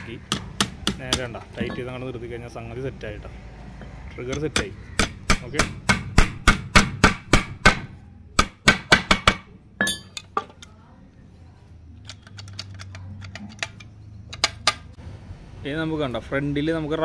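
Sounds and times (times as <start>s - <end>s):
hammer striking nail into wood: 4.4s - 9.5s
ringing metallic clink: 9.8s - 10.3s.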